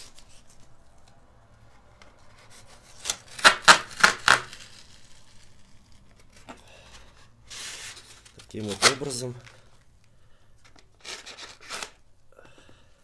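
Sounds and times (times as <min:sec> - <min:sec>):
masking tape ripping off roll: 0:02.1 - 0:06.6.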